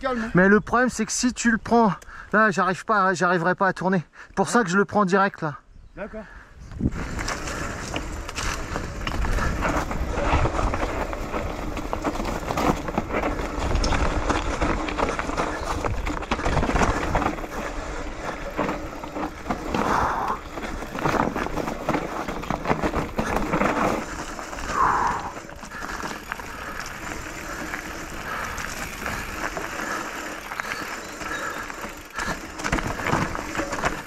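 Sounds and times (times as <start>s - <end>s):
bike tyres rolling over stones: 6.7s - 34.0s
bike rattling and knocking: 6.8s - 34.0s.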